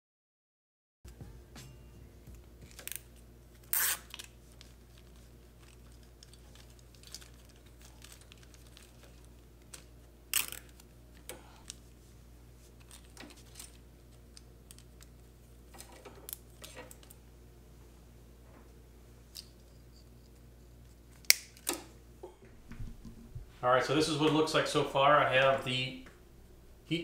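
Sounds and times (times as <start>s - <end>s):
steady low hum: 1.1s - 27.0s
rustles and small clicks: 3.7s - 11.8s.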